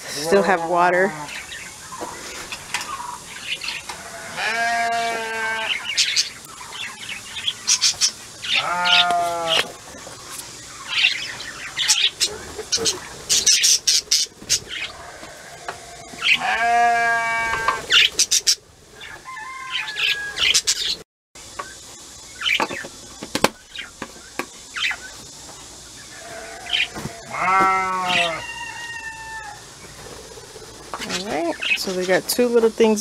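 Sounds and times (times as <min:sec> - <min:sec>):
budgerigars chirping: 0:01.2 - 0:03.9, 0:05.7 - 0:09.6, 0:10.7 - 0:15.3, 0:17.7 - 0:21.0, 0:24.7 - 0:25.2, 0:30.2 - 0:32.2
livestock wavering calls: 0:01.3 - 0:09.8, 0:10.8 - 0:20.8, 0:26.0 - 0:31.9.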